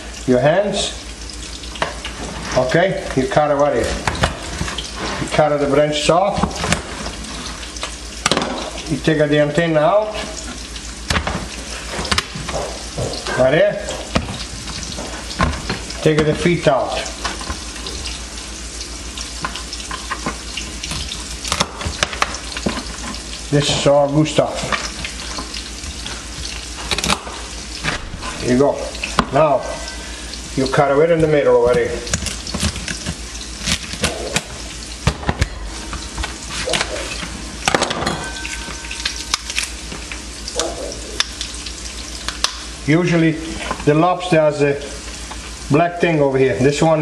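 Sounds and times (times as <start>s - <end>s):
onions sizzling in oil: 9.6s - 30.8s
knife cracking lobster shell: 21.4s - 22.4s, 26.9s - 27.4s, 32.1s - 34.5s, 39.3s - 39.8s.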